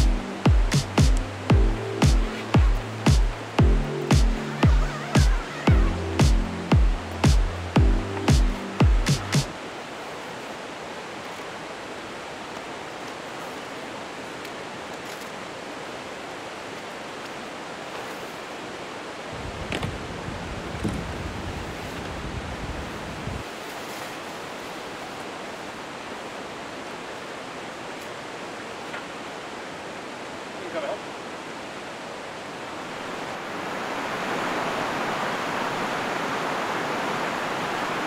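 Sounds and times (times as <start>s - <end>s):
creek rushing: 0.0s - 38.0s.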